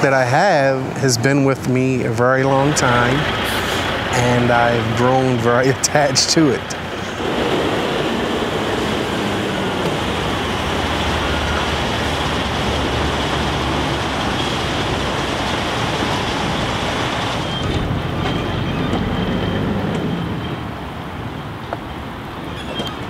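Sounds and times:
diesel engine running: 1.7 - 22.4.

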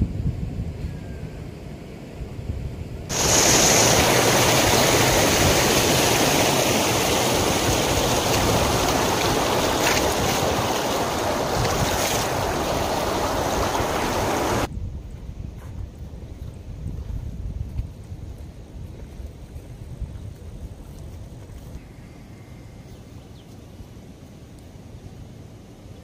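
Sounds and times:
wind rumble on microphone: 0.0 - 21.8
rushing river water: 3.1 - 14.7.

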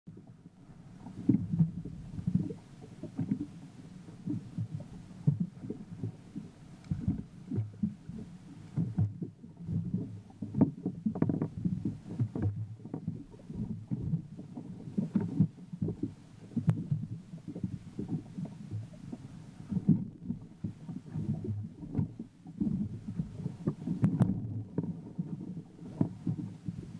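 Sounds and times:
water slapping against boat hull: 1.0 - 26.9.

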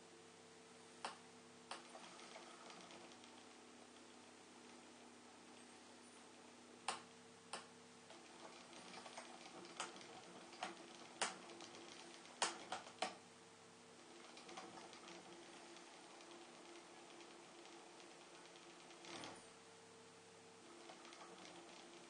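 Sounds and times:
sharp clicks and ticks: 12.4 - 13.2.

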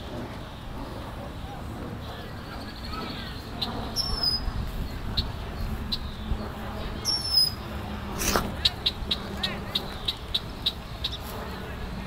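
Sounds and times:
low microphone rumble: 0.0 - 12.0
bird whistled calls: 2.8 - 4.5, 7.0 - 7.6.

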